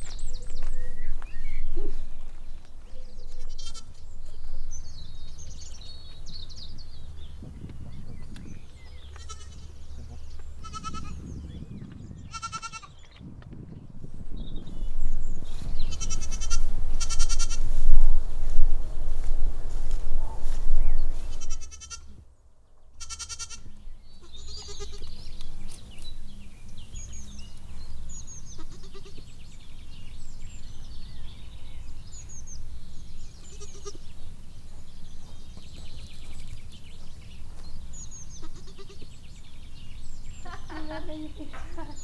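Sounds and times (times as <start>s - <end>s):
low rumble: 0.0s - 12.4s, 13.0s - 21.7s
birds chirping: 0.0s - 42.0s
goats bleating: 3.4s - 4.0s, 9.1s - 9.9s, 10.6s - 11.2s, 12.3s - 13.0s, 15.9s - 17.6s, 21.4s - 22.2s, 23.0s - 25.1s, 28.5s - 29.3s, 33.4s - 34.1s, 38.4s - 39.1s.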